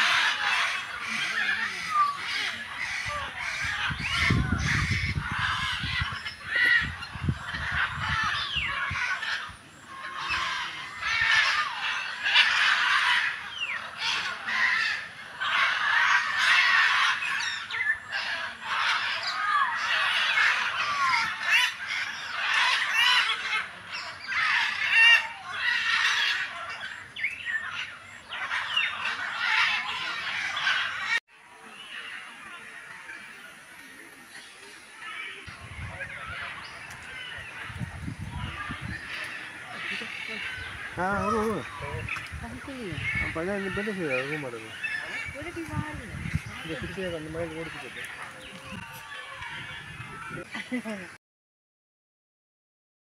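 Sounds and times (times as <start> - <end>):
many birds chattering: 0.0 - 51.2
low rumble on microphone: 35.5 - 39.4, 45.2 - 47.6.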